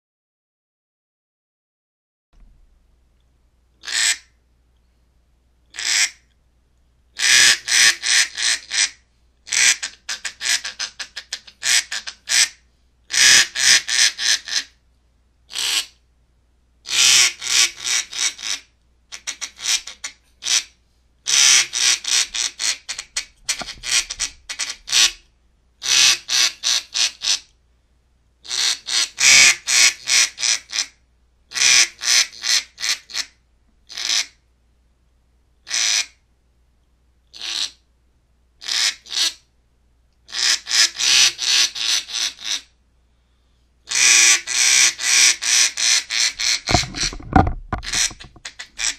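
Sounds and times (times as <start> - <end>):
duck call quacks: 3.8 - 4.3, 5.8 - 6.2, 7.2 - 14.7, 15.5 - 15.9, 16.9 - 20.7, 21.3 - 25.2, 25.8 - 27.4, 28.5 - 33.3, 33.9 - 34.4, 35.7 - 36.2, 37.4 - 37.8, 38.6 - 39.4, 40.3 - 42.7, 43.9 - 48.9.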